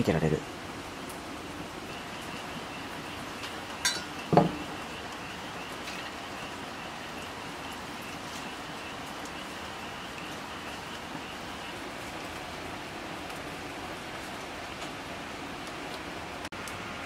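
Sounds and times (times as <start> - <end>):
steady rain falling: 0.0 - 17.0
glass bottle clinking on metal mug: 3.8 - 4.6.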